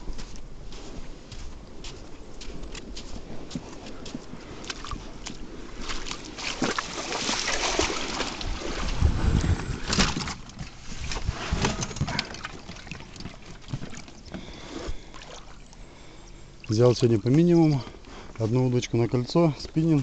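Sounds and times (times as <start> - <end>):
oars splashing in water: 2.6 - 20.0
low bumps: 7.8 - 15.1.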